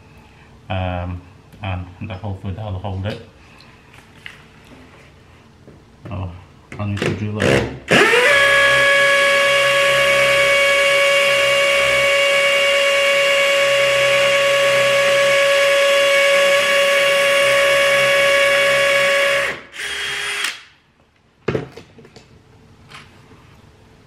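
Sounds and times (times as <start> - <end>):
cordless drill whining: 7.9 - 20.6.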